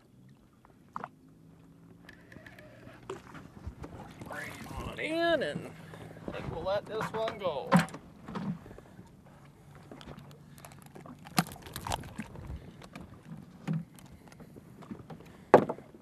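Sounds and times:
fish knocking against boat: 11.2s - 15.9s.

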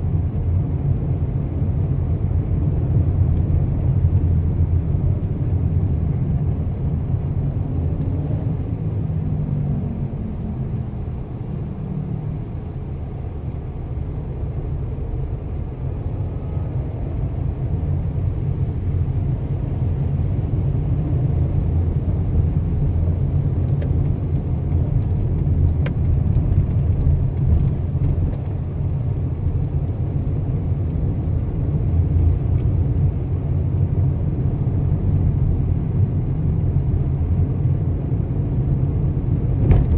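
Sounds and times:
car engine and tyre rumble: 0.0s - 39.9s.

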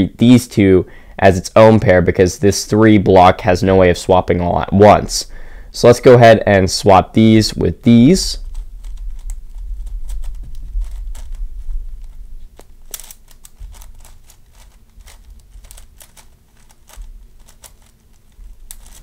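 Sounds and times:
low rumble: 8.4s - 12.9s
puzzle cube clicking: 8.4s - 19.0s.

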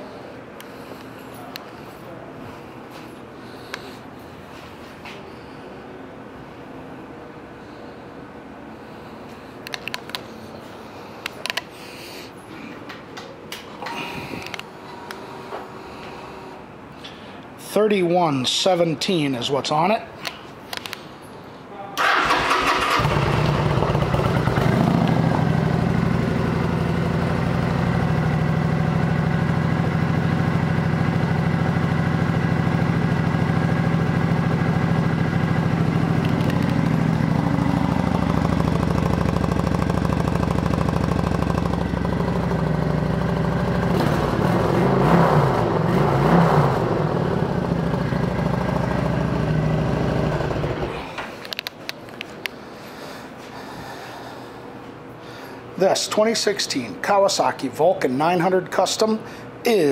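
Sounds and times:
motorcycle engine idling and revving: 22.2s - 51.0s.

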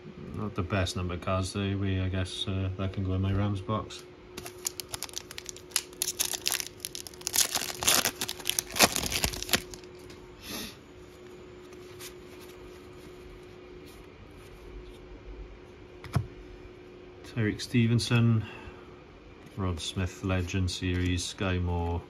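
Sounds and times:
faint steady hum: 0.0s - 22.0s
foil wrapper crackling: 4.4s - 10.0s.

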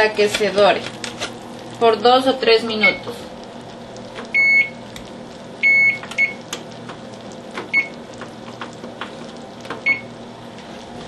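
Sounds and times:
oven control panel beeping: 2.7s - 3.1s, 4.1s - 8.8s, 9.6s - 10.2s.

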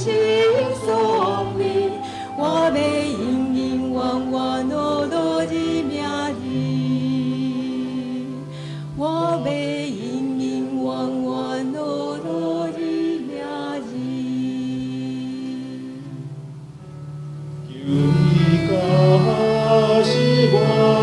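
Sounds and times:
woman singing into microphone: 0.0s - 16.3s
instrumental accompaniment: 16.0s - 21.0s.

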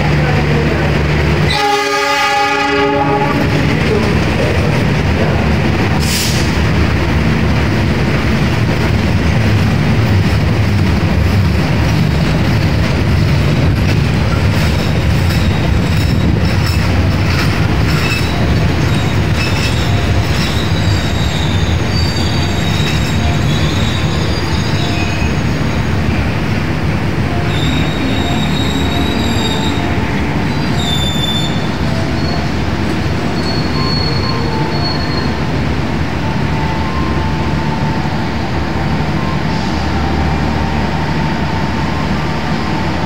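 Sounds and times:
train horn: 1.4s - 3.7s
train wheels clattering on rails: 3.2s - 35.4s
high wheel squeals: 17.9s - 25.8s, 27.4s - 32.6s, 33.2s - 35.4s.

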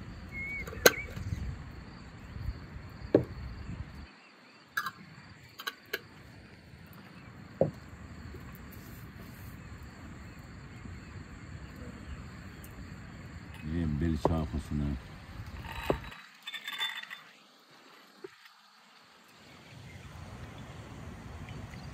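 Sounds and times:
quiet outdoor ambience: 0.0s - 21.9s
glass jars knocking on wood: 3.1s - 3.4s, 13.6s - 14.4s, 15.6s - 17.2s.

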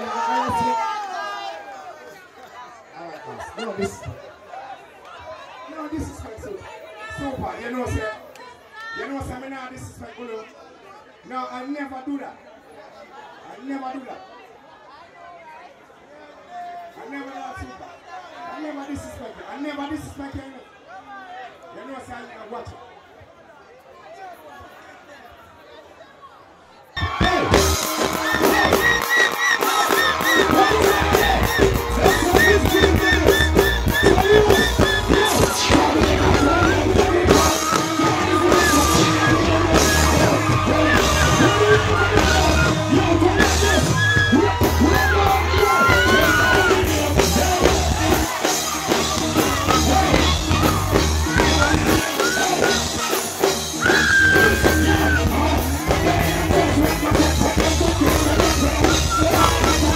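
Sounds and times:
person singing and shouting: 27.0s - 59.9s
reggae music with bass and drums: 27.0s - 59.9s.

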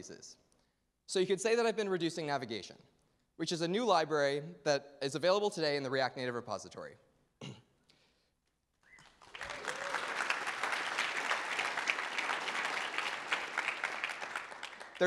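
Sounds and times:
audience applauding: 8.9s - 15.0s.

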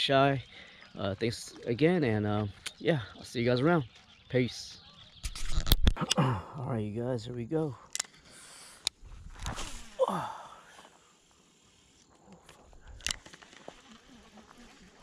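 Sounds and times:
fishing line whirring off reel: 8.9s - 10.0s.

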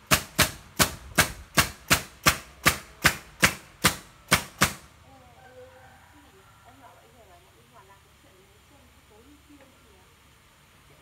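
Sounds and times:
nail gun firing into wood: 0.0s - 4.9s.

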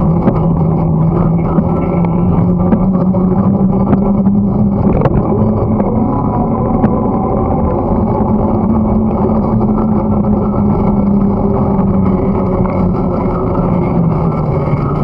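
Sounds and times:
bicycle tyre and frame rumble: 0.0s - 15.0s
low even hum: 0.0s - 15.0s.

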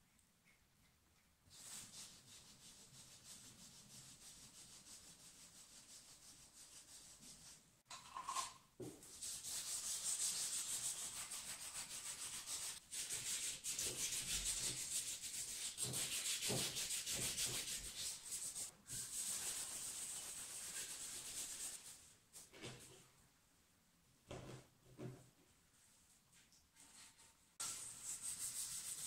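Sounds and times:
sandpaper scratching by hand: 9.2s - 22.0s, 27.6s - 29.0s.

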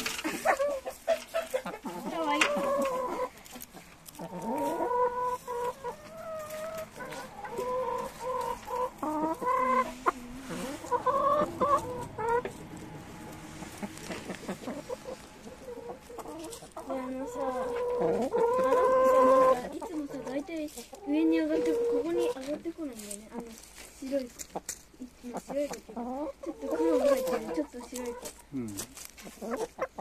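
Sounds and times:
hens clucking: 0.0s - 30.0s
hens drawn-out wavering calls: 0.2s - 20.2s.

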